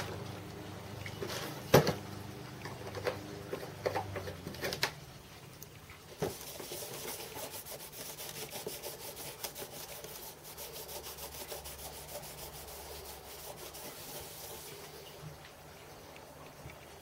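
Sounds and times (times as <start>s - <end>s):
abrasive pad scrubbing metal: 6.4s - 14.9s.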